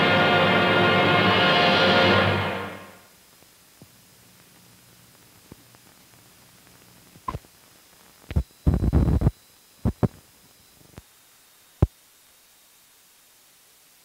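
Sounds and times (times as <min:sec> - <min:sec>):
crackling burst: 0:01.8 - 0:10.2.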